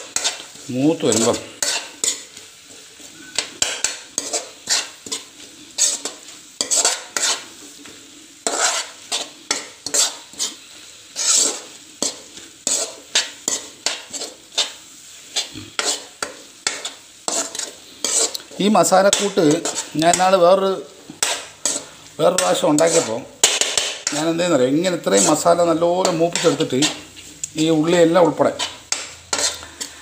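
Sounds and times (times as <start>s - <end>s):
masala sizzling in oil: 0.0s - 30.0s
metal spoon scraping a pan: 0.0s - 30.0s.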